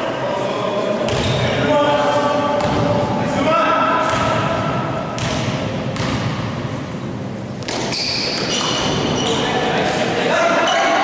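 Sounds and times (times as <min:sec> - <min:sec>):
basketball bouncing on gym floor: 0:01.1 - 0:01.4, 0:02.6 - 0:03.0, 0:04.0 - 0:06.5, 0:07.6 - 0:09.2.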